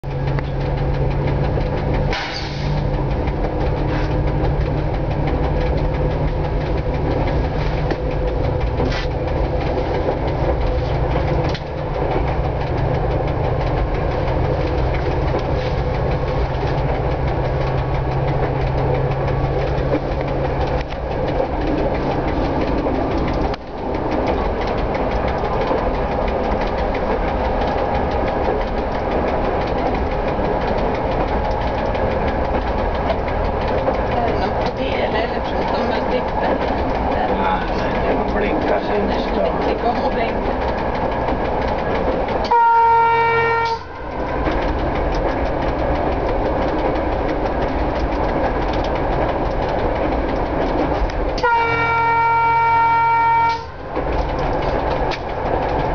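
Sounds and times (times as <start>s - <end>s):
diesel engine hum: 0.0s - 55.9s
speedometer ticking: 0.0s - 55.9s
wheels clacking over rail joints: 0.0s - 55.9s.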